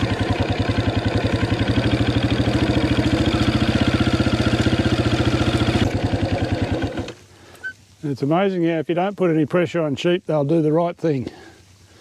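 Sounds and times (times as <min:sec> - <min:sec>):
motorbike engine running at low revs: 0:00.0 - 0:07.2.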